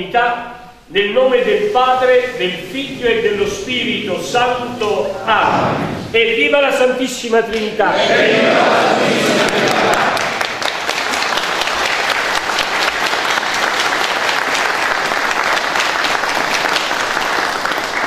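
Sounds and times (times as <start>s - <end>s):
crowd applauding: 8.6s - 18.0s.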